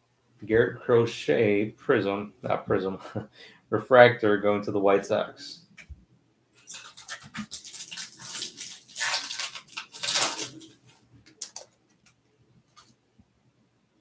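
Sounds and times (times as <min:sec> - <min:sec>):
foil wrapper crinkling and tearing: 0:06.6 - 0:11.0.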